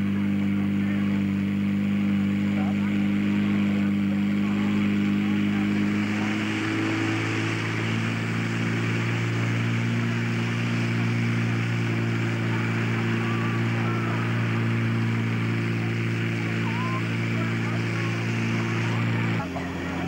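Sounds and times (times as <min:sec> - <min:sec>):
pump engine running: 0:00.0 - 0:20.0.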